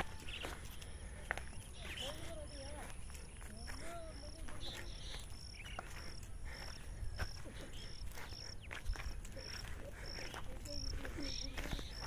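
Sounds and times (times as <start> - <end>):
insect chirping: 0.0 - 12.0.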